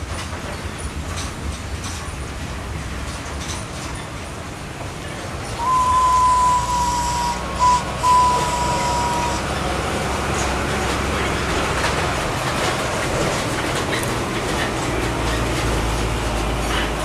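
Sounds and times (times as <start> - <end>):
train rumbling: 0.0 - 17.0
steam locomotive whistle: 5.6 - 9.7.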